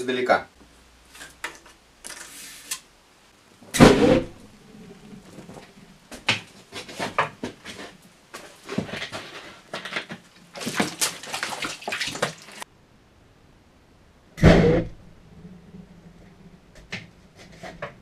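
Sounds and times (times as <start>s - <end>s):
petrol splashing from bottle: 10.5s - 12.6s.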